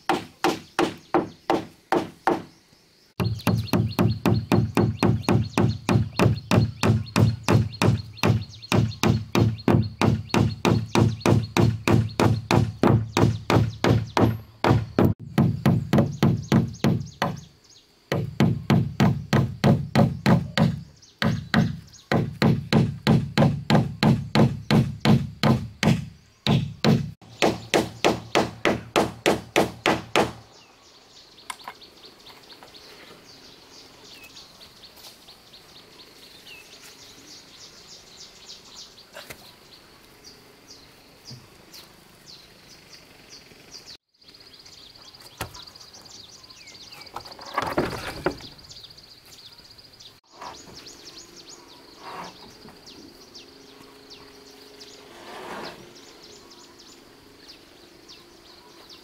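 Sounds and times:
hammer nailing wooden boat hull: 0.1s - 2.5s, 3.2s - 17.5s, 18.1s - 30.4s.

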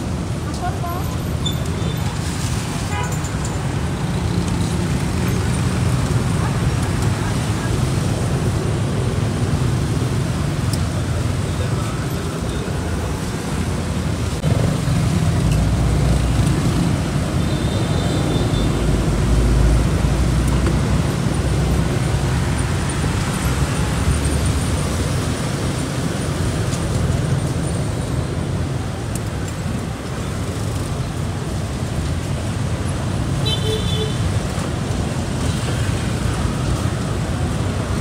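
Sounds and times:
traffic passing: 0.0s - 38.0s.

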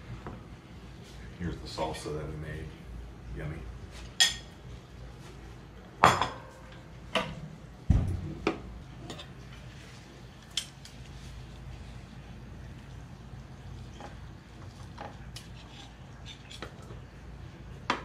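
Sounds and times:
heavy thump: 7.9s - 8.6s.

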